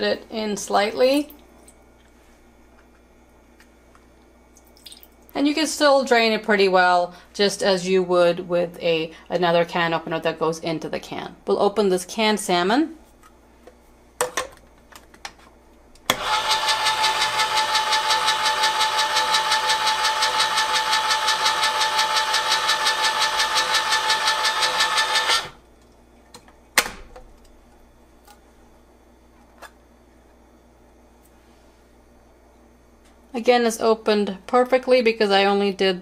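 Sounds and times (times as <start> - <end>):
can opener motor whirring: 16.1 - 25.6.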